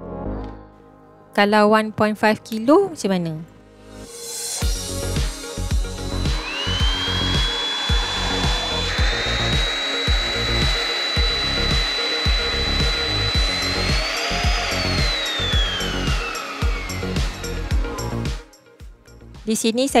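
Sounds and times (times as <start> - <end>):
background music with beat: 3.9 - 20.0
vacuum motor whining: 4.2 - 18.5.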